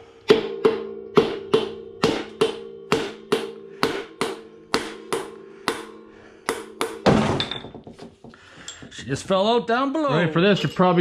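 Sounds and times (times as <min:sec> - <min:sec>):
hammer striking metal: 0:00.2 - 0:07.7.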